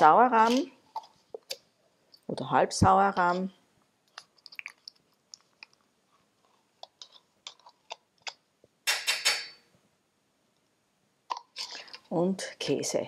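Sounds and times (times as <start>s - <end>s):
fork scraping plastic tub: 3.2s - 3.5s
small clicks and squelches: 3.2s - 9.2s.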